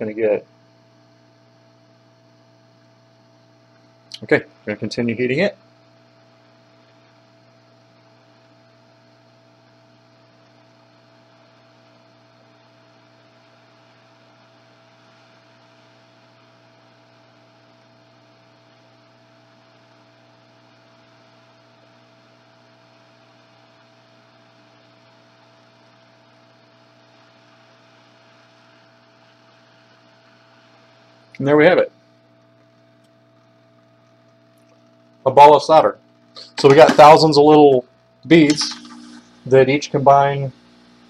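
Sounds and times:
faint electrical hum: 0.0s - 41.0s
constant whine: 9.6s - 41.0s
even hiss: 35.2s - 41.0s.

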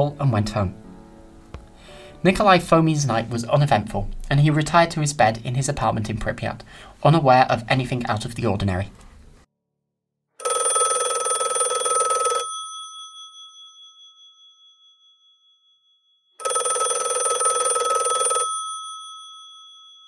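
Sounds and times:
telephone bell ringing: 10.4s - 14.9s, 16.4s - 20.0s.

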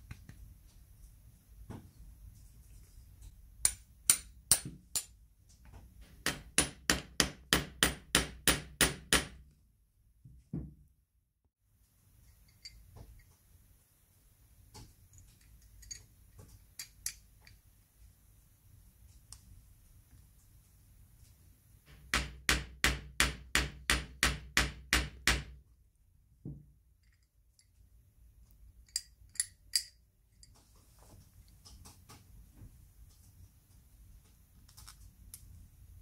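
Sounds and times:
small hammer tapping: 3.6s - 5.2s
small metal parts clicking: 15.1s - 17.6s, 28.8s - 30.5s.

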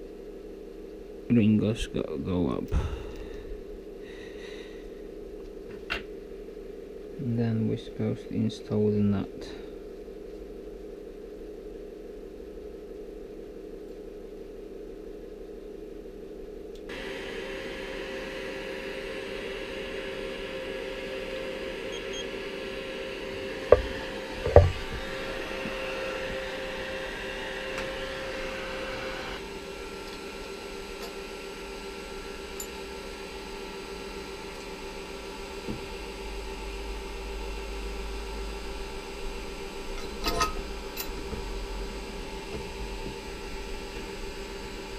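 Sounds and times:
heat gun fan whirring: 16.7s - 44.9s
sharp knocks: 23.7s - 24.9s.

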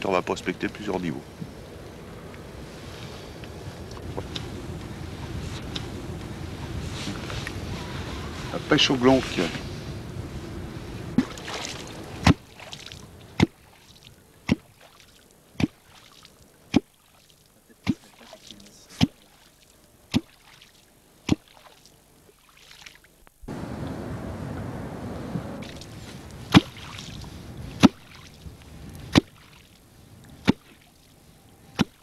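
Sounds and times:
wind and water noise: 0.0s - 32.0s
hollow strikes on water surface: 13.4s - 13.7s, 20.1s - 20.5s, 27.8s - 28.2s.

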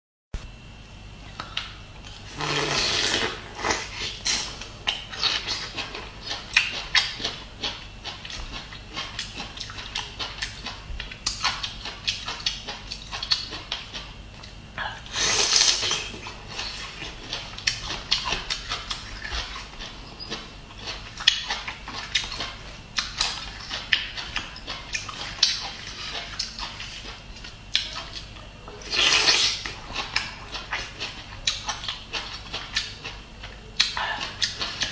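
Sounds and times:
chewing crunches: 1.4s - 34.9s
bite or slurp noise: 2.3s - 4.5s.

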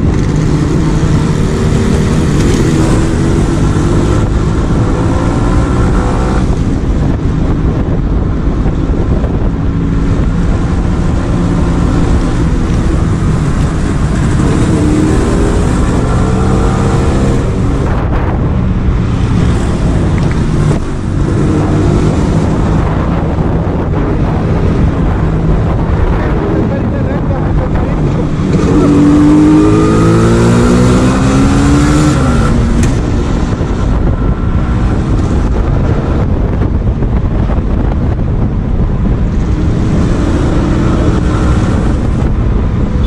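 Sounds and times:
motorcycle engine running: 0.0s - 31.8s
wind buffeting microphone: 0.0s - 43.0s.

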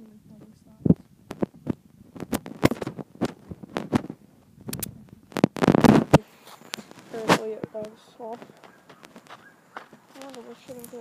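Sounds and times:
handling noise on microphone: 0.4s - 11.0s
footsteps on wood chips: 6.2s - 11.0s.

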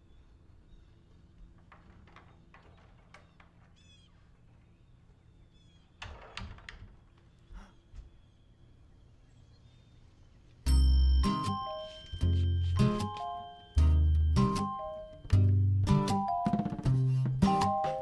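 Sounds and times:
door squeak: 5.9s - 7.7s.

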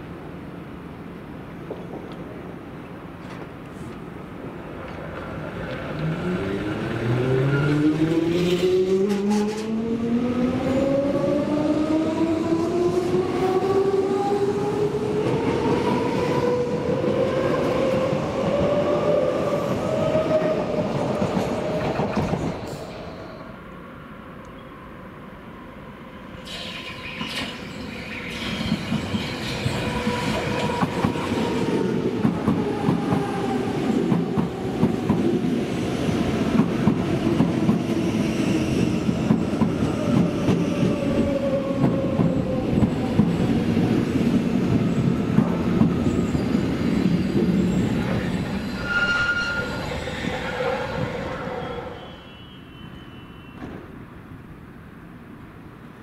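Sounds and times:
brief high squeal: 26.4s - 29.8s, 48.2s - 53.8s.

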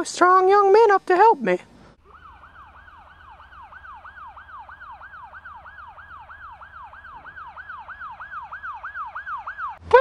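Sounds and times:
siren yelping: 2.0s - 10.0s.

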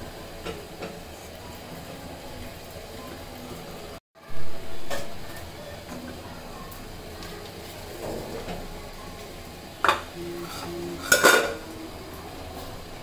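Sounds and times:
metal cookware clanking: 9.8s - 11.7s
metal lid and bowl clattering: 9.8s - 11.7s.

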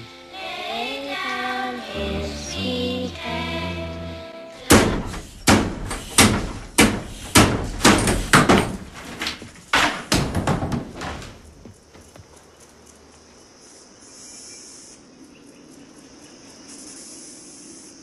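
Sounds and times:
sustained music: 0.0s - 4.7s
loud ringing bangs: 4.6s - 9.0s.

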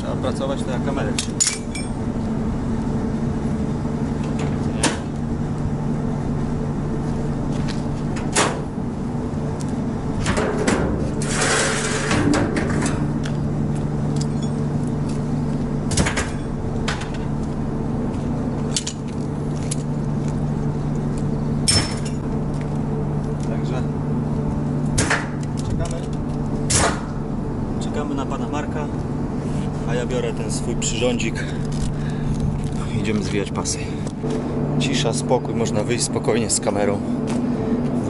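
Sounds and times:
engine idling: 0.0s - 38.0s
knocks and clatter: 10.2s - 13.1s.

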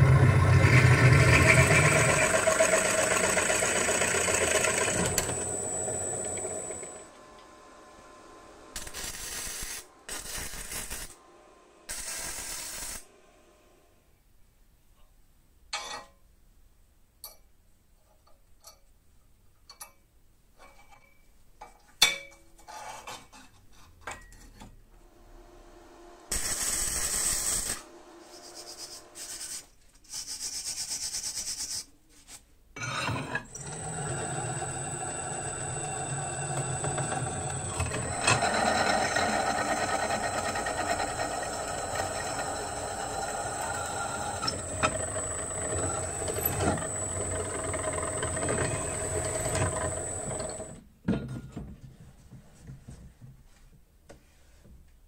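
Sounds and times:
drill bit grinding steel: 0.0s - 7.1s, 32.8s - 50.8s
drill press whining: 0.0s - 7.2s, 33.3s - 50.8s.

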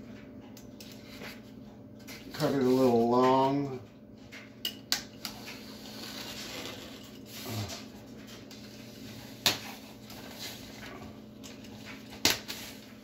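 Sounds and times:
sharp snaps and clicks: 4.2s - 5.7s.

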